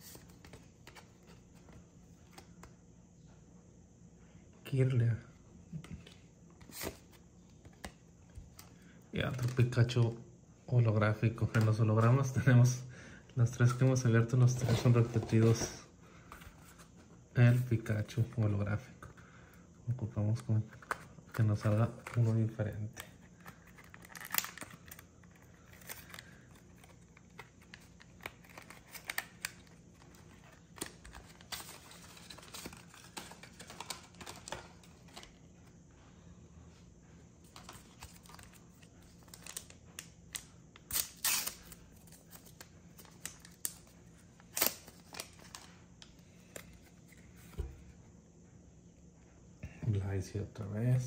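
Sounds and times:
faint steady hum: 0.0 - 51.0
trading cards snapping and rustling: 23.0 - 35.4.

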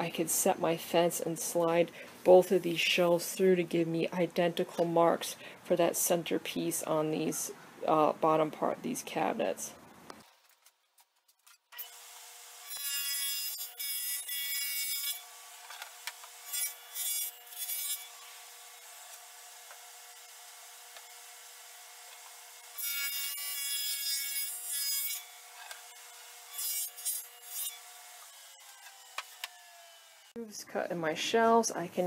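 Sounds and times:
table saw cutting plywood: 11.8 - 30.4.

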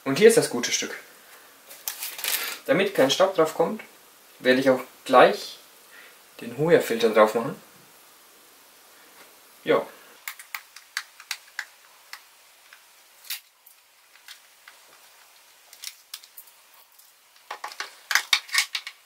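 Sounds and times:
plastic and cardboard crackling: 1.7 - 2.7, 10.2 - 19.0.

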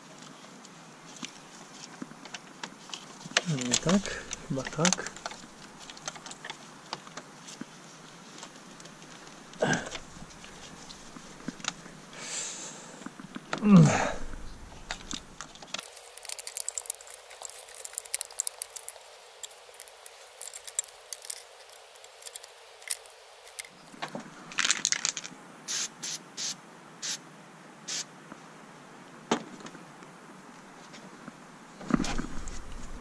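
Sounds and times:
faint steady hiss: 0.0 - 33.0
small parts clicking and clattering: 2.3 - 7.6, 14.8 - 25.3.

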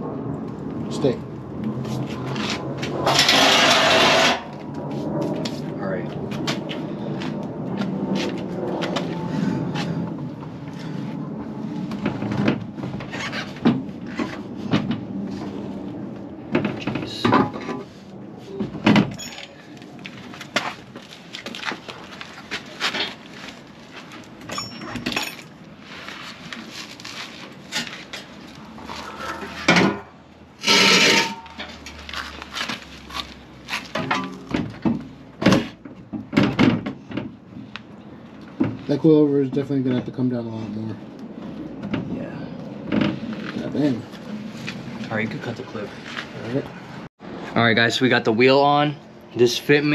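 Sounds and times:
tools and metal parts clanking: 18.7 - 20.8, 21.5 - 25.6, 27.5 - 37.3.

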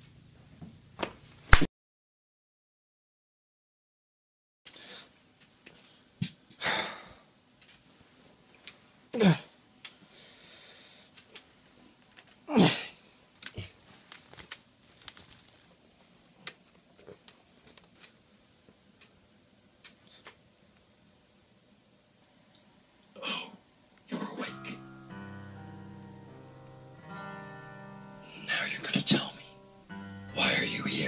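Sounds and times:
person crying out: 12.5 - 13.0
light clicks and rustling: 13.4 - 18.2.

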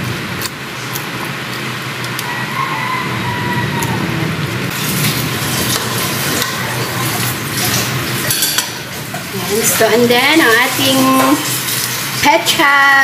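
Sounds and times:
broth boiling in pot: 0.0 - 13.0
ladle stirring soup: 4.8 - 12.3
ladle clinking against pot: 8.2 - 8.8.

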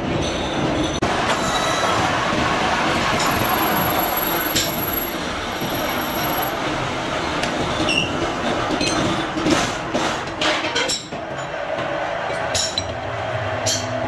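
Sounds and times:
metal lathe cutting steel: 1.1 - 6.6
thin high whine: 3.2 - 6.6.

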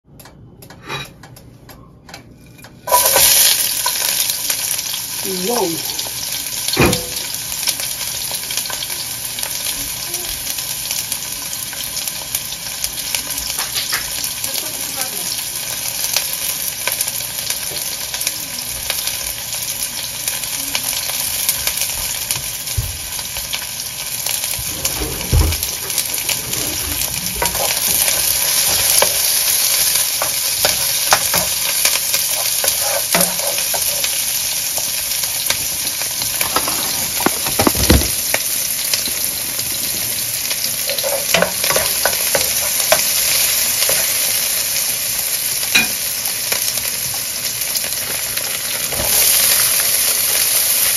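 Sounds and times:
onion sizzling in a pan: 2.5 - 50.9
wooden spoon scraping a pan: 24.6 - 34.2, 36.3 - 38.2, 40.8 - 43.2.

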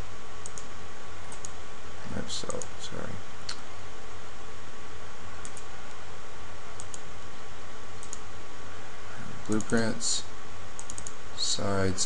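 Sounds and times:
background hiss: 0.0 - 12.0
computer mouse clicking: 0.4 - 0.7, 1.3 - 1.6, 2.5 - 2.7, 5.4 - 6.0, 6.8 - 7.0, 8.0 - 8.2, 9.4 - 9.8, 10.8 - 11.2.

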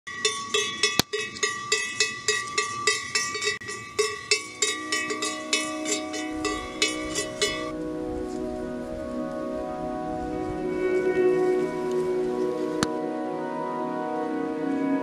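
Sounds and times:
cowbell clanking: 0.1 - 7.7
soft sustained music: 3.6 - 15.0.

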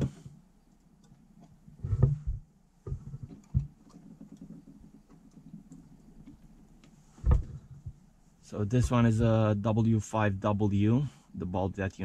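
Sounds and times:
dull knocks: 7.2 - 8.0.

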